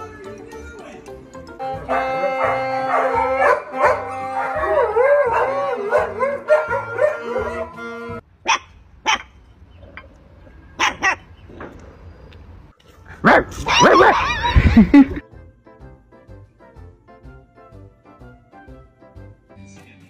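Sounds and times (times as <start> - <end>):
background music: 0.0 - 8.3, 12.8 - 20.0
puppy barking: 1.9 - 7.8, 8.4 - 9.4, 10.7 - 11.3, 13.2 - 14.7.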